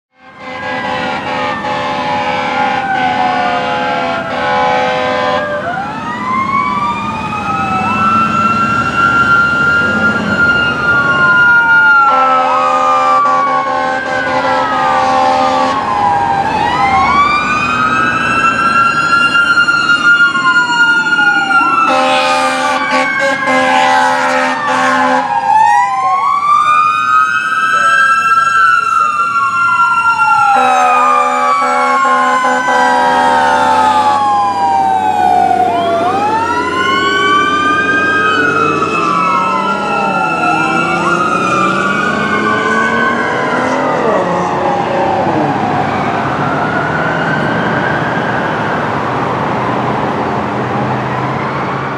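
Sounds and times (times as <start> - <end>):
loud air horn blasts: 0.1 - 5.6, 12.0 - 15.9, 21.9 - 25.5, 30.5 - 34.2
second siren wailing: 0.1 - 51.9
mechanical siren winding up and down: 14.4 - 44.6.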